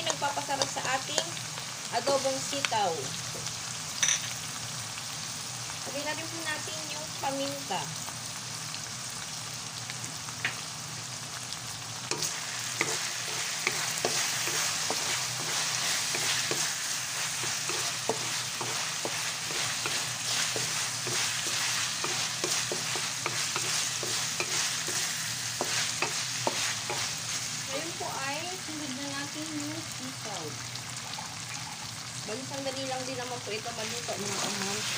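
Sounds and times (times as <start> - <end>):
meat sizzling in oil: 0.0 - 34.9
spatula scraping and clicking on pan: 12.1 - 27.1.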